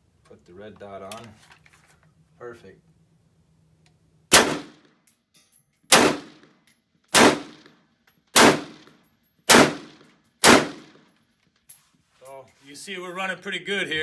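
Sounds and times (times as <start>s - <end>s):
rifle shots: 4.3s - 4.9s, 5.9s - 7.7s, 8.3s - 8.9s, 9.5s - 11.1s.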